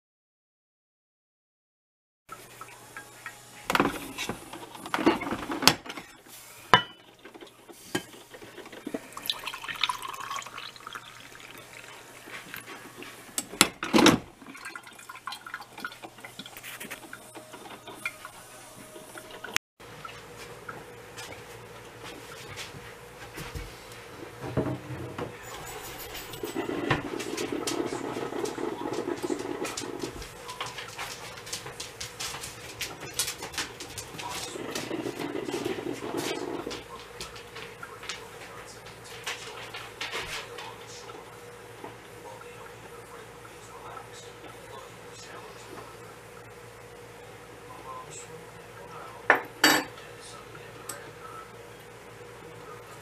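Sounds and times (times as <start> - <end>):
coffee pouring into a mug: 7.4 - 13.1, 14.3 - 18.4, 25.4 - 31.0, 34.0 - 38.1
glass carafe clinking: 9.0 - 11.5, 49.3 - 50.0
glass bottle being handled: 49.6 - 49.9.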